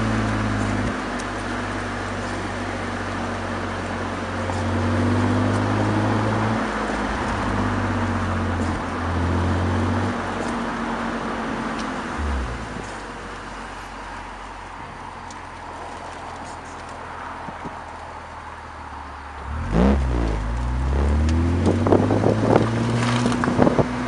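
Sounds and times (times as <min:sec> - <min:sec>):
road and wind noise: 0:00.0 - 0:24.0
car exhaust engine note: 0:12.1 - 0:13.0, 0:19.4 - 0:24.0.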